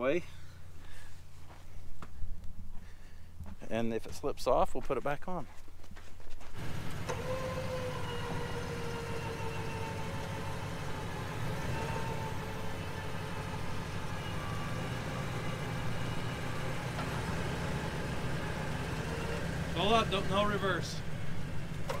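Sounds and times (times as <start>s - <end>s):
vehicle engine idling: 6.6s - 22.0s.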